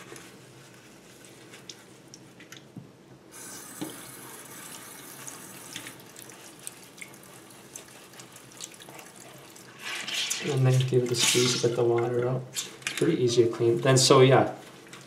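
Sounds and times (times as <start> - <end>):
faucet running: 3.4 - 9.7
cloth splashing in water: 5.8 - 9.8.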